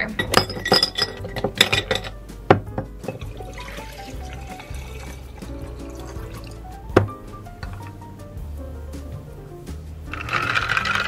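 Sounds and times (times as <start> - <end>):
glass jar clinking: 0.0 - 6.6
background music: 0.0 - 11.0
coffee pouring over ice: 0.2 - 2.2, 3.1 - 6.6, 10.1 - 11.0.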